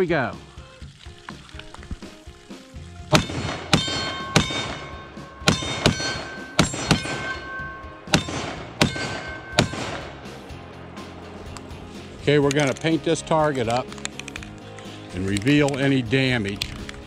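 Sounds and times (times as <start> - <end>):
rifle shots: 3.1 - 10.4
steel plate ringing: 3.1 - 10.4.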